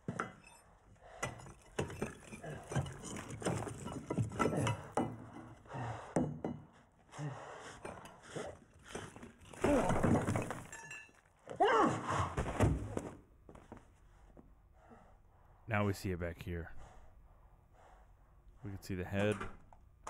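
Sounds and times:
bricks thudding and breaking: 1.3s - 5.2s, 8.9s - 11.1s.

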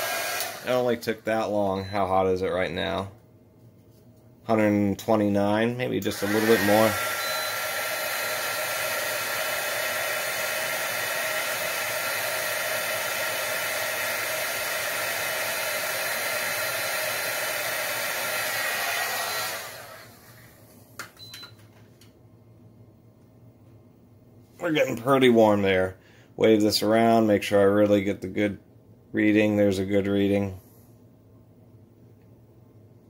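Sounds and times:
heat gun blowing hot air: 0.0s - 0.9s, 6.1s - 20.4s.

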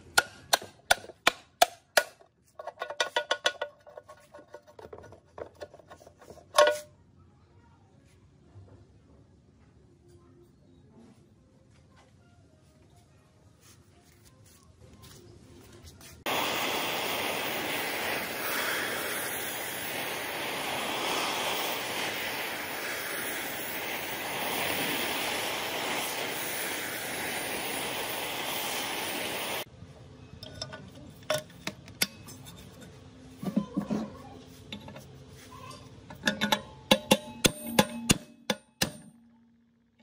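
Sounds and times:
metal clicks and knocks of hand tools: 0.1s - 6.9s, 36.1s - 39.1s
gas torch flame hissing: 16.2s - 29.7s.

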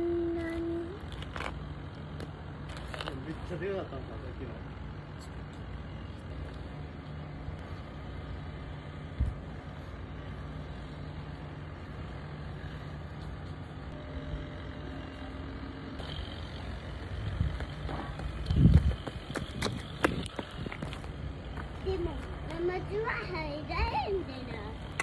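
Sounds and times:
distant traffic hum: 0.0s - 25.0s
child running on dirt path: 17.2s - 22.6s.

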